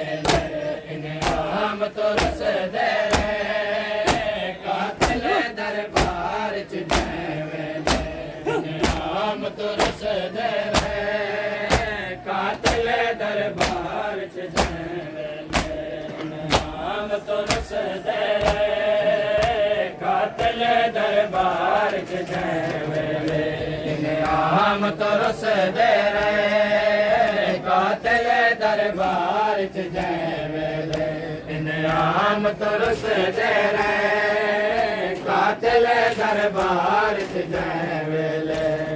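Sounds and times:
men chanting in unison: 0:00.0 - 0:38.9
hand slaps on chest: 0:00.2 - 0:00.6, 0:01.2 - 0:03.4, 0:04.0 - 0:04.4, 0:05.0 - 0:07.2, 0:07.8 - 0:09.2, 0:09.8 - 0:10.1, 0:10.7 - 0:11.0, 0:11.7 - 0:12.0, 0:12.6 - 0:12.9, 0:13.6 - 0:13.9, 0:14.5 - 0:14.8, 0:15.5 - 0:15.8, 0:16.4 - 0:16.8, 0:17.4 - 0:18.7, 0:19.4 - 0:19.7.

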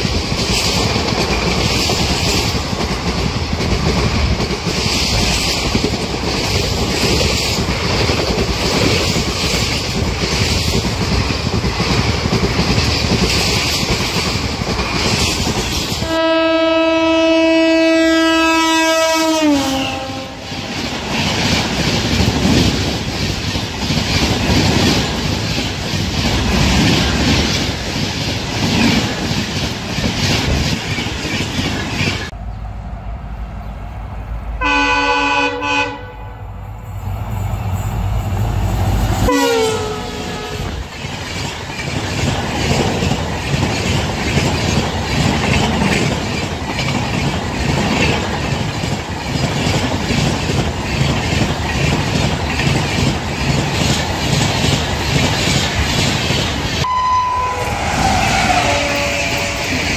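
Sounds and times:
train rushing past: 0:00.0 - 0:59.9
locomotive horn: 0:16.0 - 0:20.7, 0:34.6 - 0:36.5, 0:39.3 - 0:40.8, 0:56.8 - 0:59.9.

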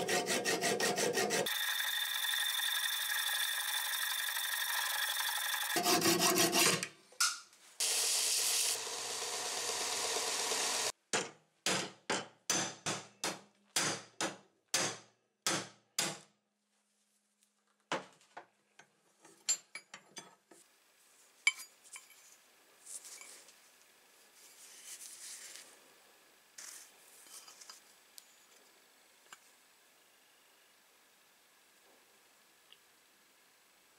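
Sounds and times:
hacksaw cutting metal: 0:00.0 - 0:06.9.

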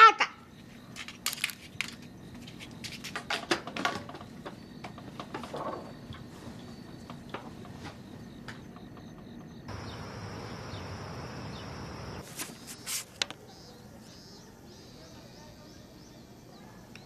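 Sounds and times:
high-pitched hum with hiss: 0:09.7 - 0:13.3.

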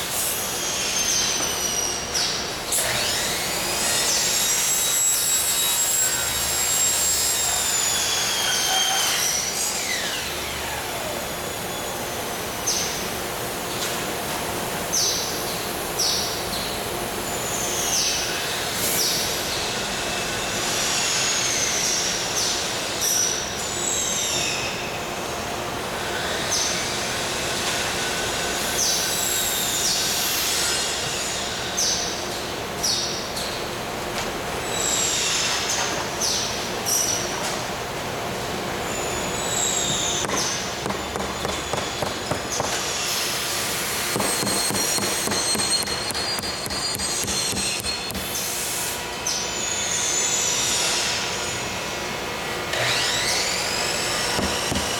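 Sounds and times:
workshop machinery noise: 0:00.0 - 0:54.9
high gliding squealing tones: 0:04.2 - 0:10.8.

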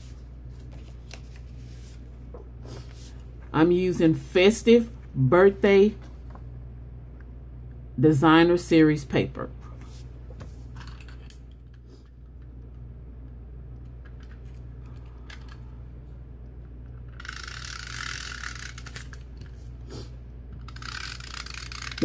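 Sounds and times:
paper rustling: 0:00.0 - 0:02.0
tape runner rasping on paper: 0:20.6 - 0:22.0.

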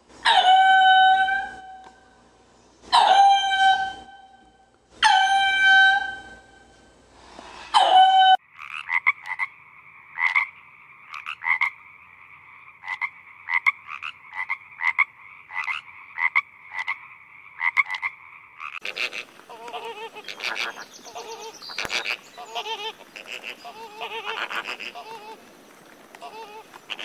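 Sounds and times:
frog clicking croaks: 0:08.5 - 0:20.9.

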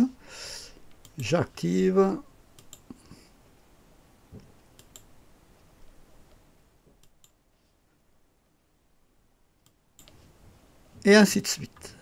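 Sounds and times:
computer mouse clicks: 0:00.9 - 0:01.3, 0:02.5 - 0:03.0, 0:04.7 - 0:05.1, 0:07.0 - 0:07.4, 0:09.6 - 0:10.2.

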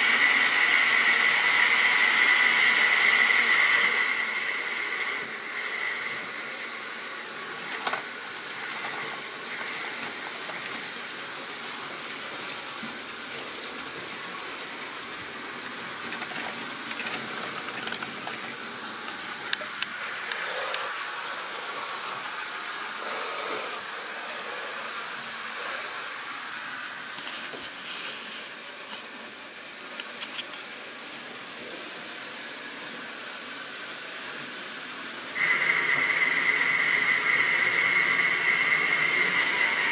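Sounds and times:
model wagon wheels on rails: 0:07.5 - 0:21.6.

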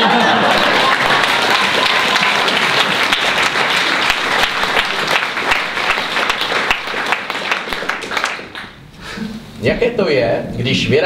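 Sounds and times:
audience applause: 0:00.0 - 0:08.8.

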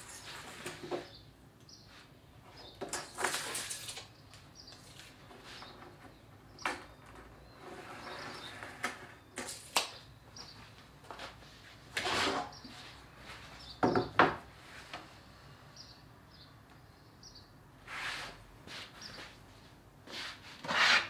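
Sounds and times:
scrape on workbench: 0:12.0 - 0:12.6, 0:17.9 - 0:18.9, 0:20.1 - 0:21.0.

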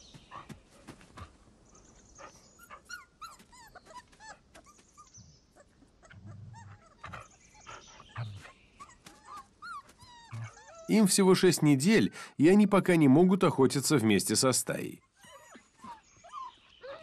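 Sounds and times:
wolf pups whimpering and squeaking: 0:02.2 - 0:11.0, 0:15.0 - 0:17.0.

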